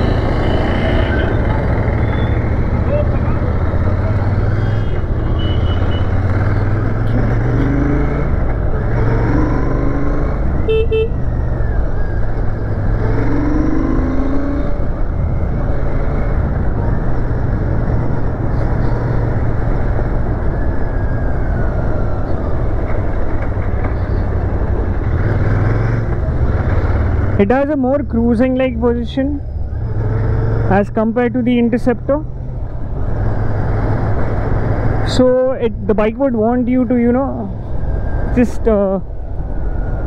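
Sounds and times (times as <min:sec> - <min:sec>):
wind and road noise: 0:00.0 - 0:40.0
vehicle horn beeping: 0:05.4 - 0:06.1, 0:10.7 - 0:11.2.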